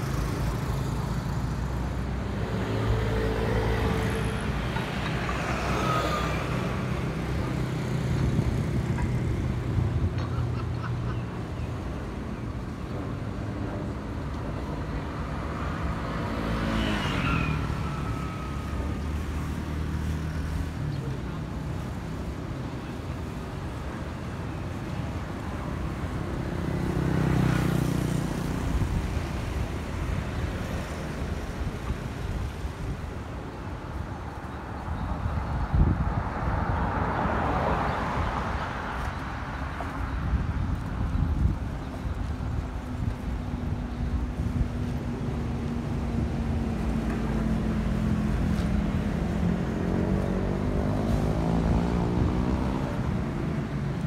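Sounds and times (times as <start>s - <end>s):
wind on microphone: 28.4s - 54.0s.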